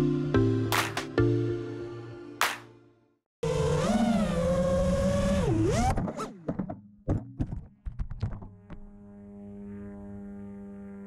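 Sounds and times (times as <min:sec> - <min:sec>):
drone motors whining: 0:03.4 - 0:06.5, 0:08.2 - 0:11.0
drone tumbling knocks and thuds: 0:06.0 - 0:08.9.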